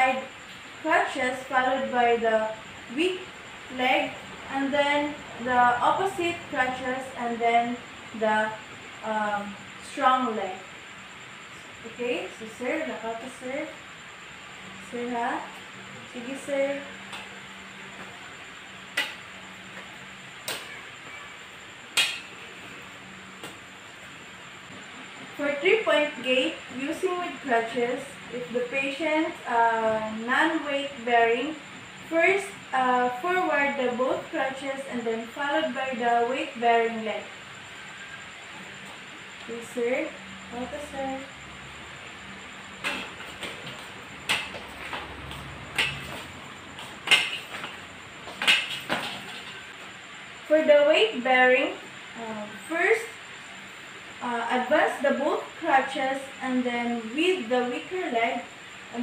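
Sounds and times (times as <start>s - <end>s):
faint steady hum: 0.0s - 59.0s
crutches tapping on hard floor: 42.8s - 49.6s.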